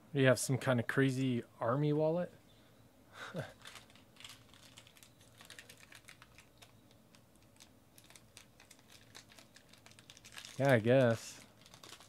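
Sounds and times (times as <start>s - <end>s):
plastic wrapper crackling: 3.5s - 12.0s.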